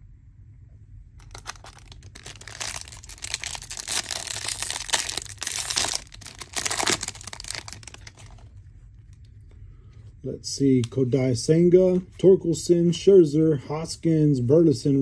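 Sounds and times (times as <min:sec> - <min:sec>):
wrapper crinkling and tearing: 0:01.2 - 0:08.6.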